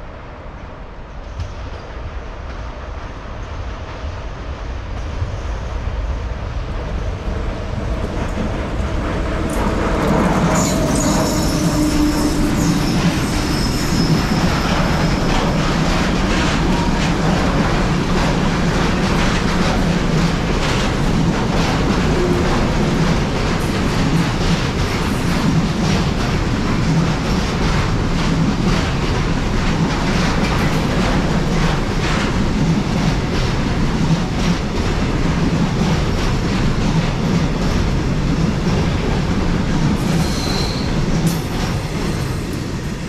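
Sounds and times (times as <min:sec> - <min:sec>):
train running past: 0:00.0 - 0:43.0
high wheel squeal: 0:10.5 - 0:15.5, 0:40.1 - 0:41.0.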